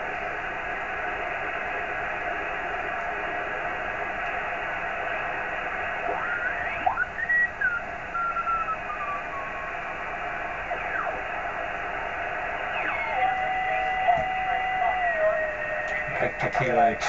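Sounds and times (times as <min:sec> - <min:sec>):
radio hiss: 0:00.0 - 0:17.0
whistling carrier tones: 0:06.3 - 0:09.7.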